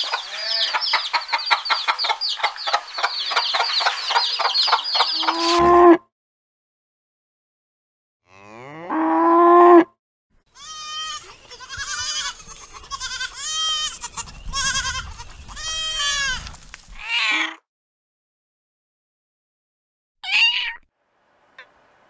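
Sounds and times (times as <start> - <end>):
young antelope bleating: 0.2 - 0.8, 5.1 - 6.0, 10.5 - 17.6, 20.2 - 20.8
cow mooing: 5.2 - 6.0, 8.3 - 9.9.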